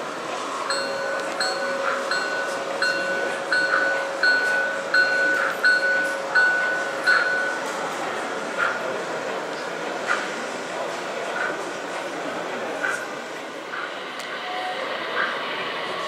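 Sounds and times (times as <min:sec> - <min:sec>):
steady held tone: 0:00.4 - 0:08.7.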